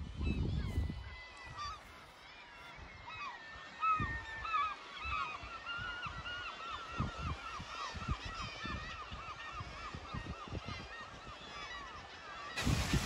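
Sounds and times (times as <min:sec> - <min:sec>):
wind buffeting microphone: 0:00.0 - 0:01.9, 0:12.6 - 0:13.0
seabirds calling: 0:00.0 - 0:13.0.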